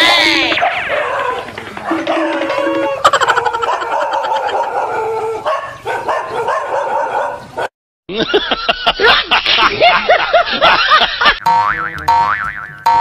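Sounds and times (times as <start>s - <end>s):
dog barking and yelping: 0.2s - 7.7s
wobbling sound effect: 11.4s - 13.0s.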